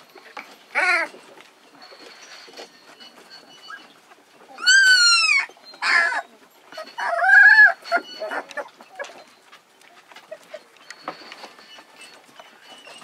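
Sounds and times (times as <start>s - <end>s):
paws scratching on wooden floor: 0.0s - 13.0s
puppies whining: 0.0s - 13.0s
puppy yelping: 0.7s - 1.2s, 3.3s - 13.0s.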